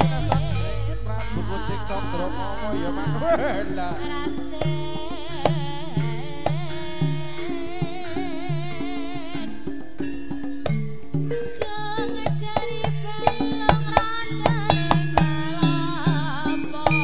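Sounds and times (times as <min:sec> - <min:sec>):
held gong-chime notes: 0:15.4 - 0:17.0.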